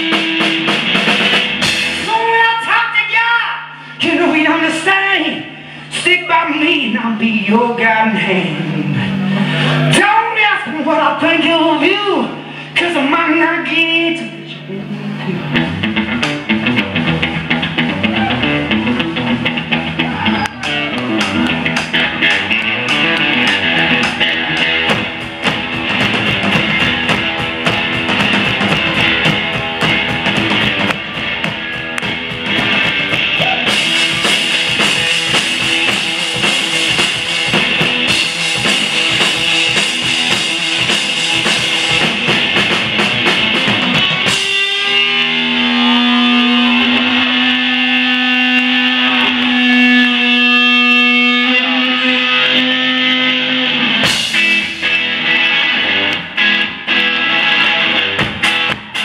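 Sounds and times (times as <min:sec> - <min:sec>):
electric guitar riff: 0:00.0 - 0:02.4, 0:08.0 - 0:10.0, 0:14.3 - 0:59.0
drum kit: 0:00.0 - 0:02.7, 0:15.4 - 0:51.7, 0:52.4 - 0:59.0.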